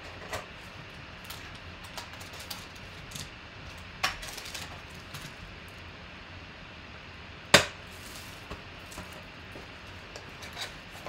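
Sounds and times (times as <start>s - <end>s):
foil packs tapping and clicking: 0.2s - 5.4s, 7.6s - 10.7s.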